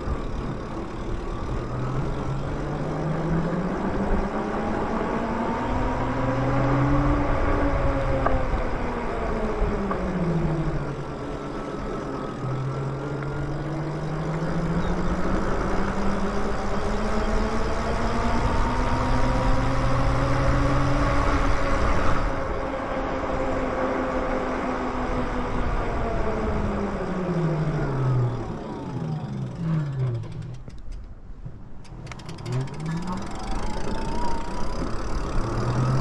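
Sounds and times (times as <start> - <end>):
electric motor whining: 31.9 - 36.0.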